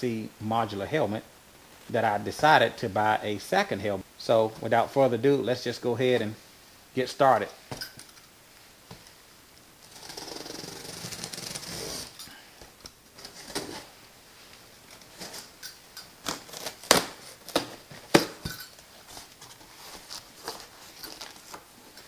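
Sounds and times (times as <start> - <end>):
packing tape being cut: 9.8 - 12.2, 13.1 - 14.0, 16.2 - 18.5, 19.2 - 21.7.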